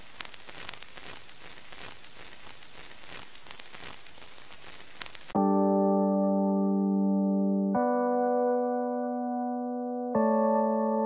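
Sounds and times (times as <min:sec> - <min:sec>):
record surface crackle and hiss: 0:00.0 - 0:05.5
sustained keyboard chord: 0:05.4 - 0:11.0.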